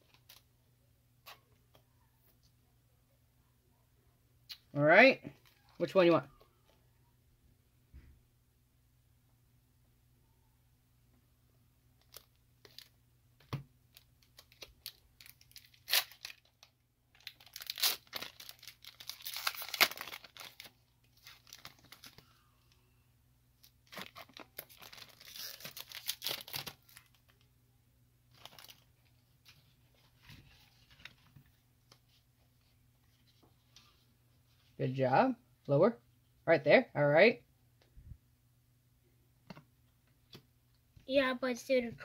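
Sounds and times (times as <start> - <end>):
foil pack tearing and crinkling: 14.3 - 16.6, 17.2 - 22.2, 23.8 - 27.2, 28.3 - 28.8.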